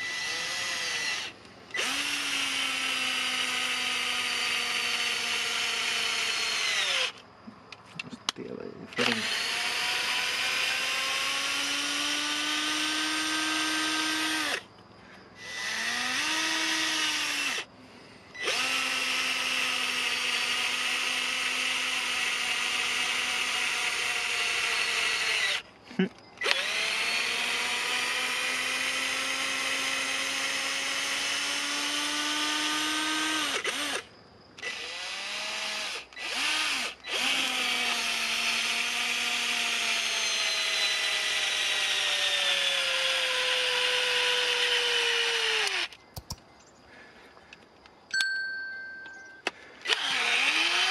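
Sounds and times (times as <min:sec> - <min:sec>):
cordless drill driving screw into log: 0:00.0 - 0:07.2, 0:09.0 - 0:14.7, 0:15.4 - 0:17.7, 0:18.4 - 0:25.6, 0:26.4 - 0:46.4, 0:49.4 - 0:50.9.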